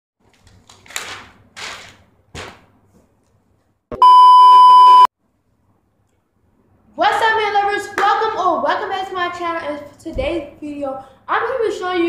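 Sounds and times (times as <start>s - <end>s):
test tone beep: 3.9s - 5.1s.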